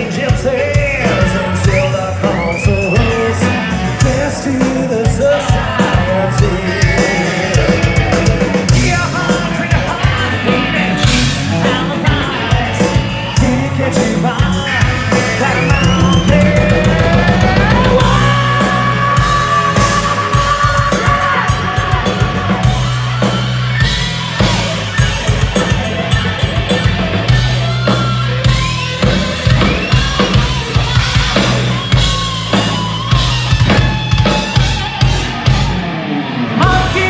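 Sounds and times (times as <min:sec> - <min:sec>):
man singing high vocals: 0:00.0 - 0:23.0, 0:36.6 - 0:37.0
hard rock band playing live: 0:00.0 - 0:37.0.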